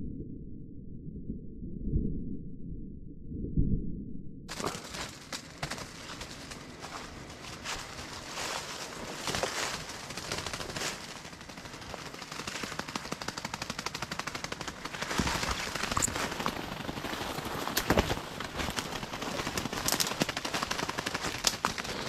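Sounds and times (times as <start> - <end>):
footsteps crunching dry leaves: 4.5 - 12.2, 15.0 - 20.2
branches brushing and snapping: 4.5 - 13.0, 14.7 - 22.0.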